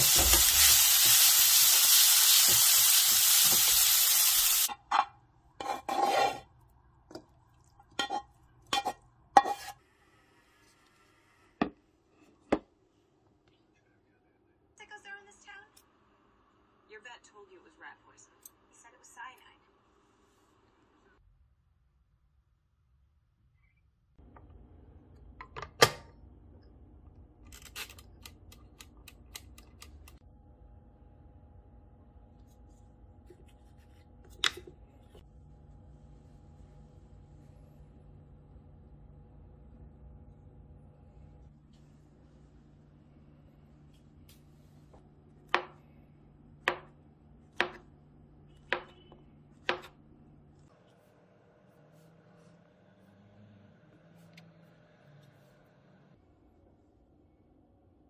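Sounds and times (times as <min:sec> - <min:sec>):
faint steady hum: 0:28.8 - 0:50.8.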